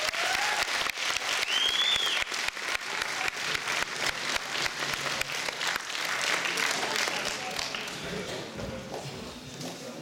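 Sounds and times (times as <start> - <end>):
audience applauding: 0.0 - 8.0
short high whistle: 1.4 - 2.2.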